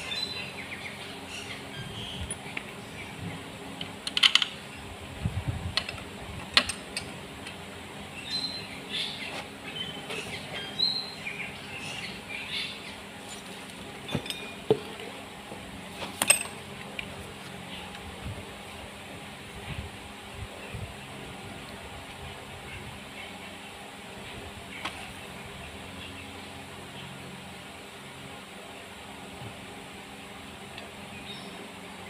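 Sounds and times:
metal tools clinking on engine block: 0:14.0 - 0:15.1, 0:16.1 - 0:16.6.

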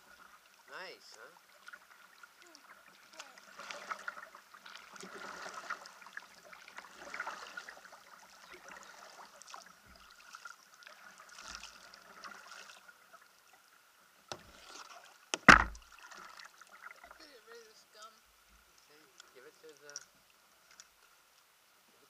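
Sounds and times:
paddle splashing and dripping: 0:00.0 - 0:21.4
sharp knock: 0:15.4 - 0:15.8.

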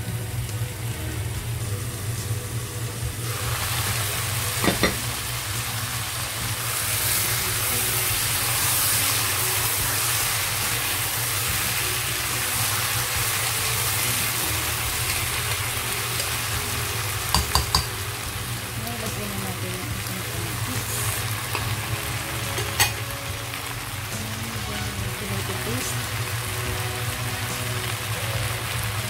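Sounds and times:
chicken sizzling in oil: 0:00.0 - 0:29.0
spatula stirring: 0:06.7 - 0:18.0.

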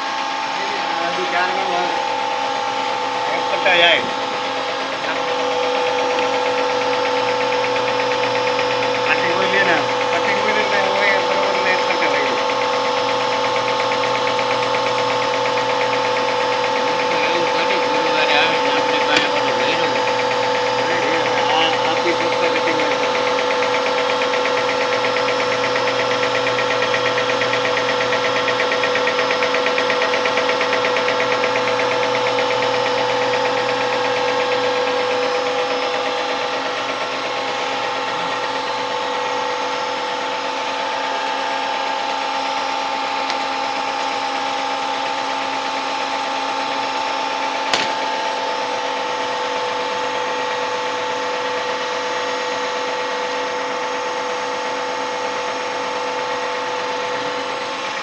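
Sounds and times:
gear shaper machine whine: 0:00.0 - 0:58.0
cutter stroking: 0:03.1 - 0:38.9
sharp click: 0:47.7 - 0:48.1.

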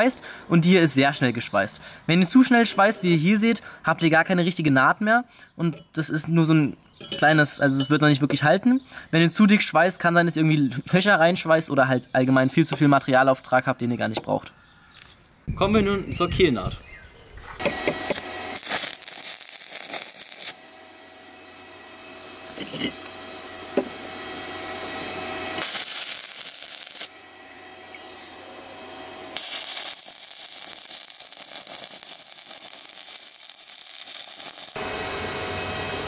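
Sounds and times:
welding arc hissing: 0:17.7 - 0:20.8, 0:25.5 - 0:27.4, 0:29.2 - 0:34.8.

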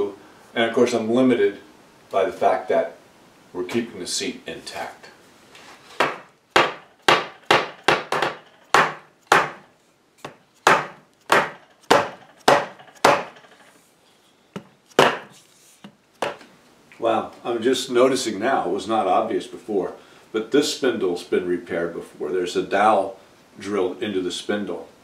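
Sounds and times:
sharp wooden knocks: 0:06.0 - 0:13.7, 0:14.6 - 0:16.4.

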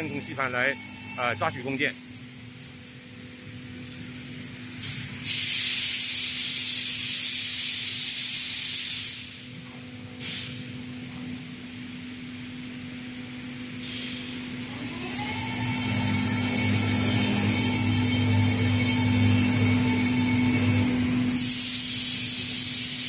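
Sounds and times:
machine hum: 0:00.0 - 0:05.4, 0:10.7 - 0:23.0
compressed air hissing: 0:04.2 - 0:09.6, 0:10.2 - 0:10.8, 0:13.7 - 0:23.0.

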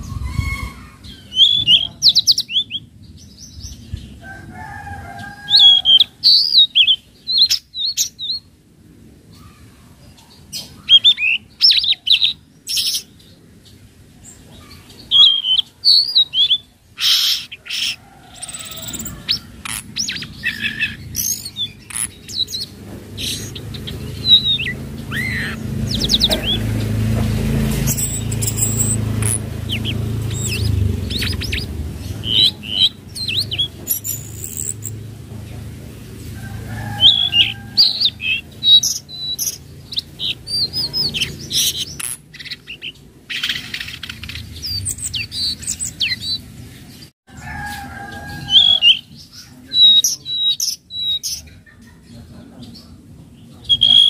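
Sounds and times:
bird singing chirps and whistles: 0:00.0 - 0:02.9, 0:10.6 - 0:13.1, 0:15.1 - 0:26.6, 0:27.8 - 0:34.9, 0:37.0 - 0:46.4, 0:48.4 - 0:51.4, 0:53.6 - 0:54.0.

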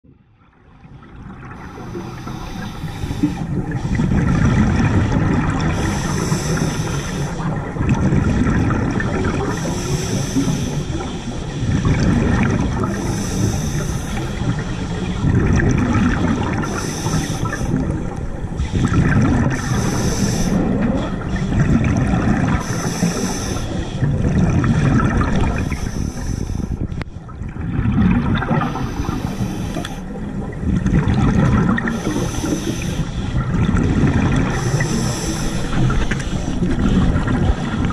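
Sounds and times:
diver breathing through regulator: 0:01.6 - 0:07.6, 0:09.3 - 0:15.2, 0:16.5 - 0:18.0, 0:18.6 - 0:21.6, 0:22.3 - 0:24.2, 0:25.2 - 0:27.0, 0:28.4 - 0:30.2, 0:31.6 - 0:37.6.

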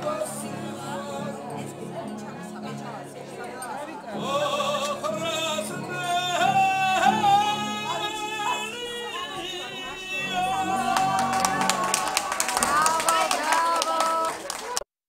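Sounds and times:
hand clapping: 0:10.8 - 0:14.9.

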